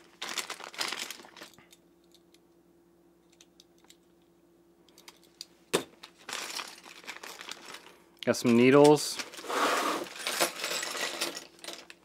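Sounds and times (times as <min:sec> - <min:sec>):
plastic bag crinkling: 0:00.0 - 0:01.8, 0:05.9 - 0:12.0
faint steady hum: 0:00.0 - 0:12.0.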